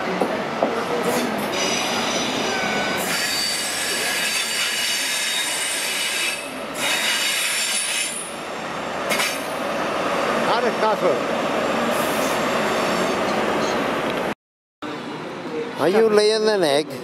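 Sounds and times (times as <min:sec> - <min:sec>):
steel wheels squealing on rails: 0:01.0 - 0:08.4, 0:11.9 - 0:13.9.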